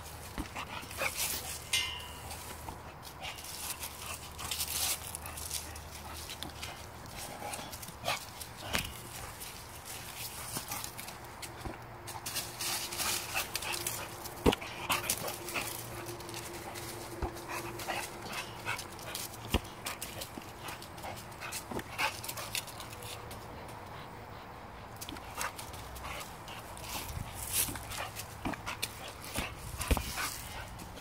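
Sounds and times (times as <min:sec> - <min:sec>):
paws crackling in dry leaves: 0:00.0 - 0:31.0
dog noises: 0:12.5 - 0:31.0.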